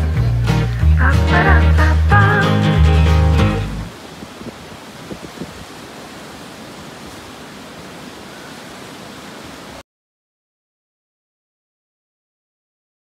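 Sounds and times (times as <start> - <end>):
river water rushing: 0.0 - 9.8.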